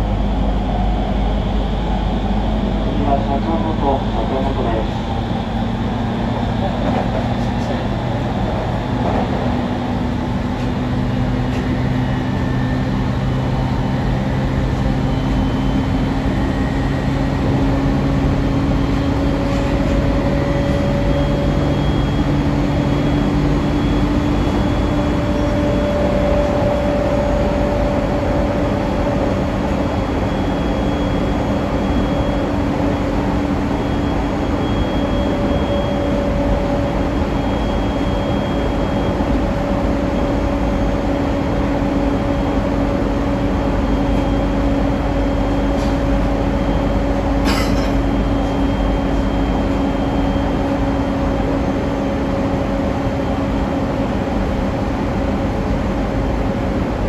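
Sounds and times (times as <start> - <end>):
train wheels rumbling on rails: 0.0 - 14.9, 35.3 - 54.1.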